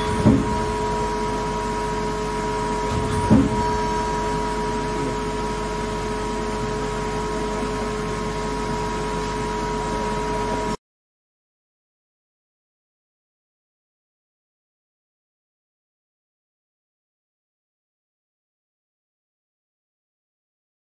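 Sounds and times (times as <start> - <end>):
tool turret clunks: 0.0 - 1.3, 2.7 - 4.6
lathe two-tone whine: 0.0 - 10.8.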